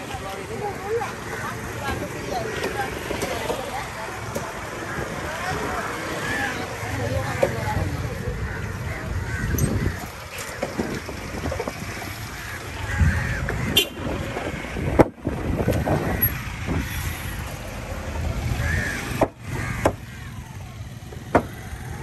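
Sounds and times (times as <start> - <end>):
sharp knocks: 19.1 - 20.1, 21.2 - 21.6.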